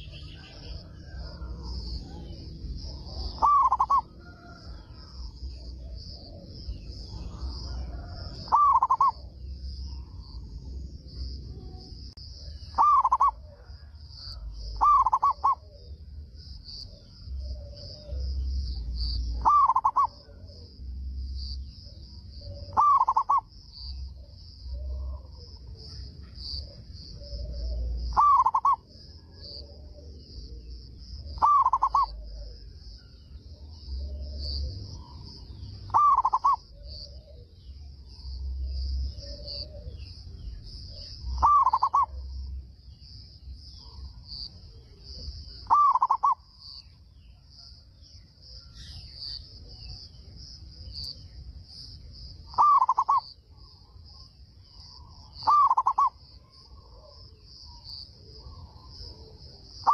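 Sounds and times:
dove cooing: 0.0 - 9.3, 12.4 - 16.0, 16.8 - 20.7, 22.4 - 37.6, 38.2 - 40.2, 40.9 - 42.4, 45.5 - 46.4, 52.5 - 53.3, 55.0 - 59.9.

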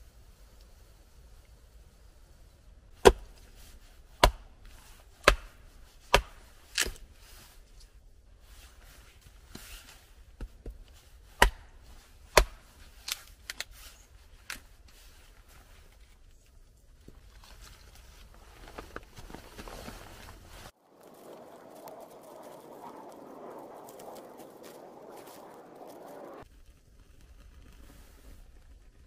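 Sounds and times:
blade chopping strikes: 3.0 - 3.4, 4.2 - 4.5, 5.2 - 7.0, 11.4 - 12.7.

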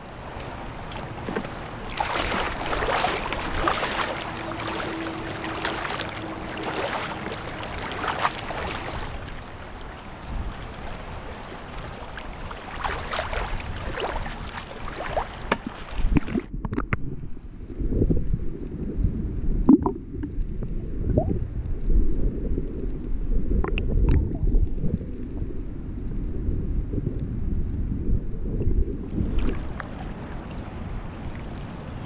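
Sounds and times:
seawater sloshing and splashing: 0.0 - 16.5, 29.1 - 32.0
wind on microphone: 0.0 - 32.0.

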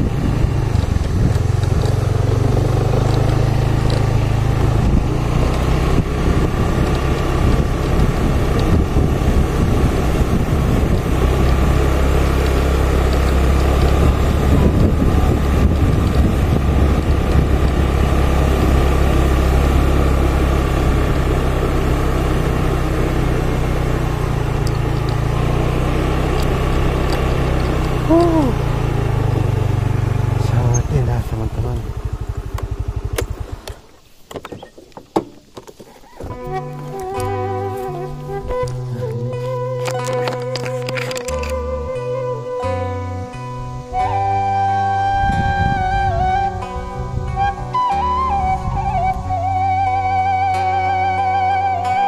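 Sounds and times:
wind buffeting microphone: 0.0 - 21.5, 43.9 - 50.5
motorcycle engine cruising: 0.0 - 52.0.

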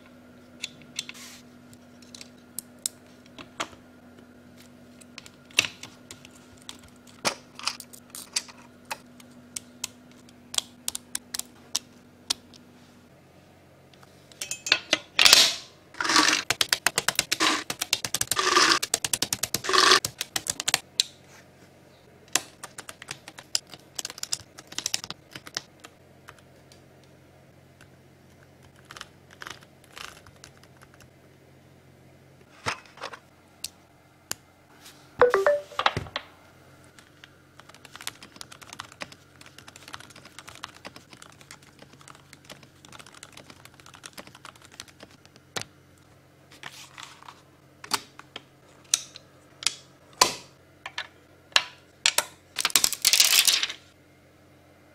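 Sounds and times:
mechanical keyboard clacking: 16.4 - 20.8, 22.6 - 25.6, 37.6 - 45.2.

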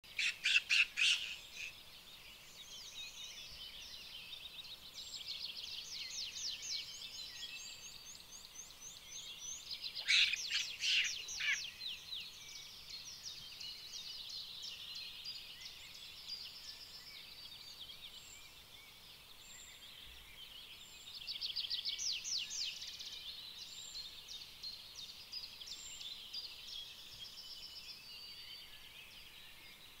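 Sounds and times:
birds trilling and chirping: 0.0 - 21.3
loud harsh bird calls: 0.1 - 1.7, 10.0 - 11.7.

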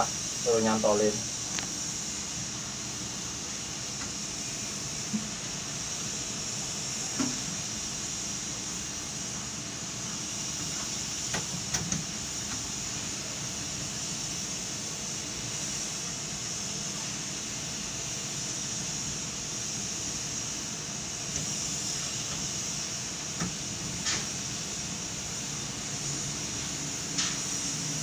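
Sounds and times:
crane machinery hiss and hum: 0.0 - 28.0.

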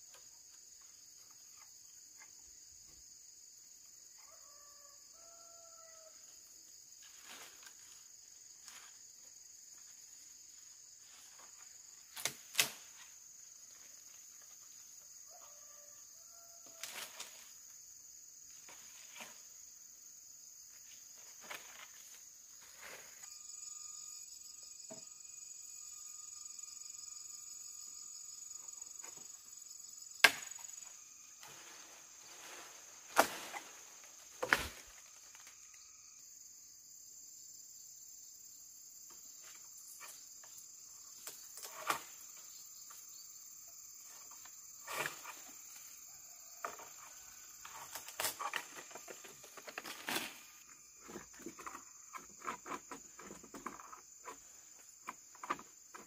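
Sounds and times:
high insect drone: 0.0 - 56.0
leaves rustling: 6.9 - 14.8, 31.2 - 35.8, 47.0 - 50.8
bamboo pole knocking branches: 12.1 - 13.0, 30.2 - 30.7, 33.1 - 35.0, 47.6 - 50.5.

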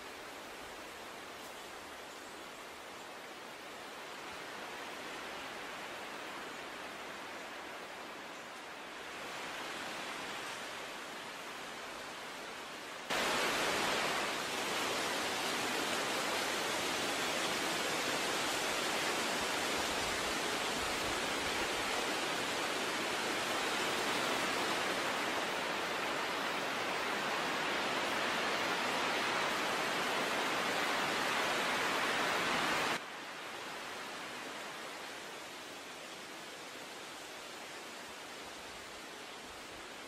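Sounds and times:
water rushing: 3.3 - 40.0.

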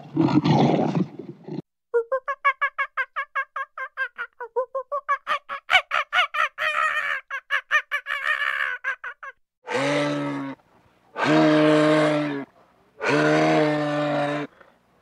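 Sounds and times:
monkey yelping calls: 5.2 - 9.3
moose harsh low calls: 9.7 - 14.6.

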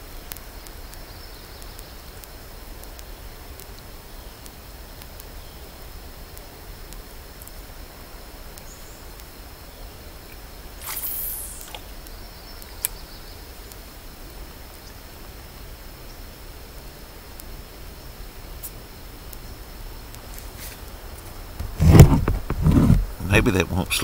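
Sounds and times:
fishing rod swishing: 10.8 - 11.8.

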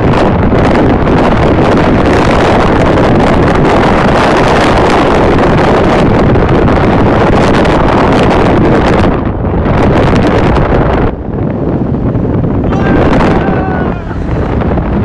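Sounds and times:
vehicle running noise: 0.0 - 15.0
wind buffeting microphone: 0.0 - 15.0.

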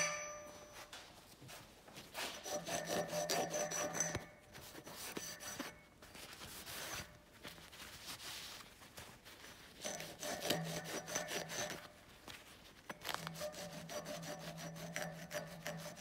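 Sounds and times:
rag rubbing on steel wrench: 2.3 - 5.8, 9.8 - 11.9, 12.9 - 16.0.

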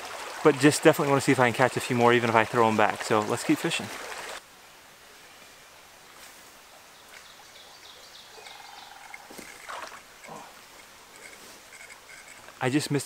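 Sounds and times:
running water: 0.0 - 4.5, 5.9 - 13.0
high bird chirps: 7.0 - 9.3
low animal calls: 7.5 - 10.6.

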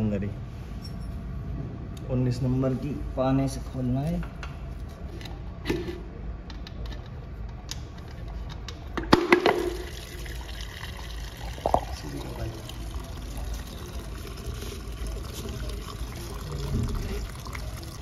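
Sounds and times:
oil pouring into plastic jug: 9.5 - 18.0.

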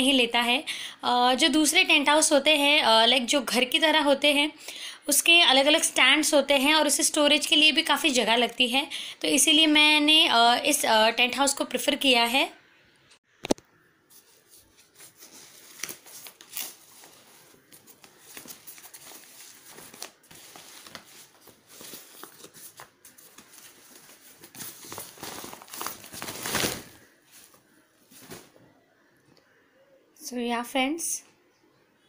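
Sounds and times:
tent fabric rustling and crinkling: 14.2 - 28.6.

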